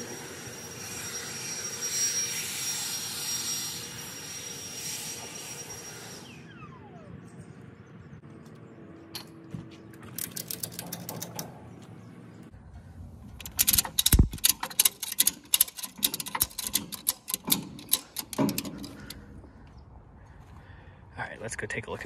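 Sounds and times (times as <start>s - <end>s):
ratchet strap clicking: 13.3s - 19.2s.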